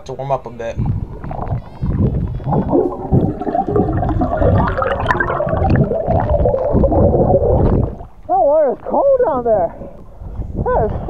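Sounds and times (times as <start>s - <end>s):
air bubbles streaming: 0.8s - 8.3s
water bubbling underwater: 0.8s - 8.3s.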